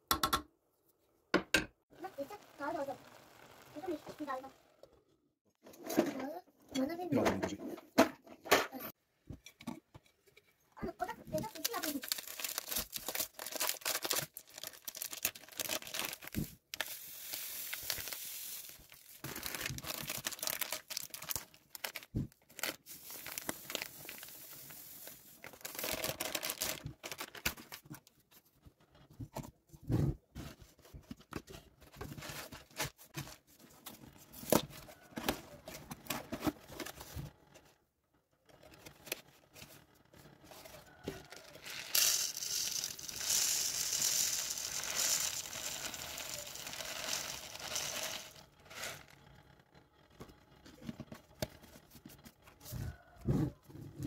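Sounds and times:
plastic packet tearing and crinkling: 0:11.4 - 0:28.0, 0:41.6 - 0:49.0
dry food poured into plastic tub: 0:41.6 - 0:49.0.

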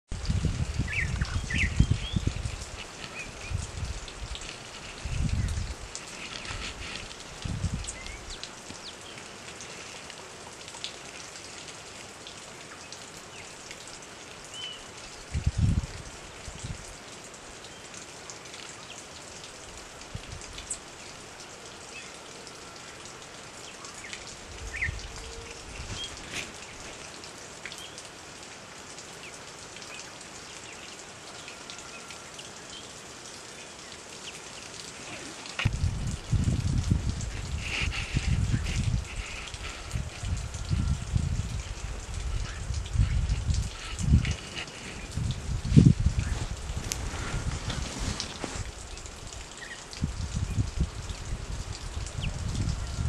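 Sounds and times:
outdoor background hiss: 0:00.1 - 0:52.5
small birds chirping: 0:00.8 - 0:03.6, 0:07.8 - 0:09.3.

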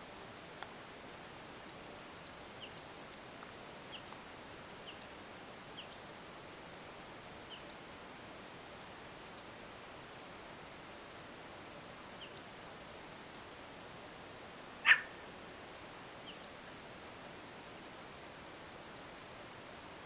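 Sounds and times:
steady outdoor hiss: 0:00.0 - 0:20.0
bird chirping: 0:14.8 - 0:15.2.

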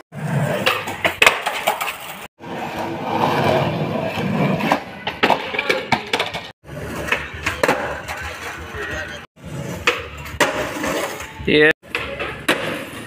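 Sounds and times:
skateboard rolling on concrete: 0:00.0 - 0:13.0
skateboard clacking on ground: 0:00.4 - 0:02.3, 0:04.0 - 0:09.2, 0:09.8 - 0:13.0.

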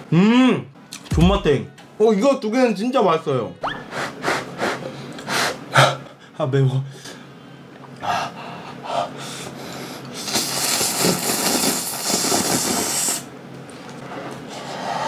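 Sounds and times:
person slurping noodles: 0:10.2 - 0:13.2.

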